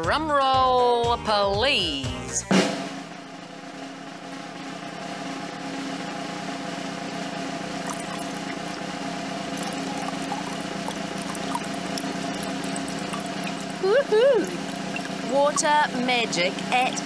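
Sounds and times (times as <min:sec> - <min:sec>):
low hum: 0:07.4 - 0:16.1
water drips: 0:07.8 - 0:08.8, 0:09.5 - 0:16.0
water trickling into a glass: 0:07.8 - 0:08.8, 0:09.4 - 0:15.7.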